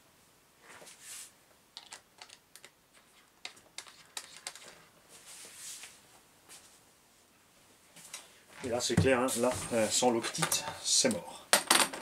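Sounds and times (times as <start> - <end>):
soft rustle: 0.6 - 1.4, 2.9 - 10.3.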